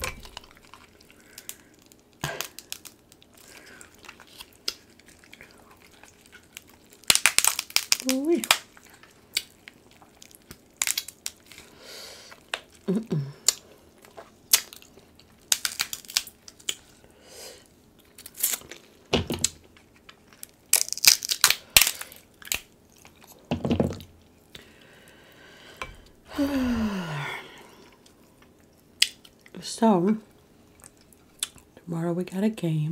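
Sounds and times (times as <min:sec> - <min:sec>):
chewing: 0:00.0 - 0:11.7, 0:21.8 - 0:23.5, 0:30.2 - 0:31.8
crab shells cracking: 0:00.0 - 0:17.0, 0:18.0 - 0:24.7, 0:28.0 - 0:29.5.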